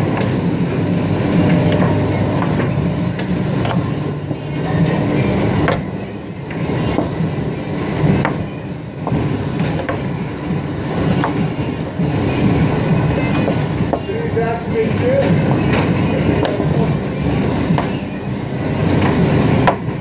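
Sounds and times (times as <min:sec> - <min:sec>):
low machine hum: 0:00.0 - 0:20.0.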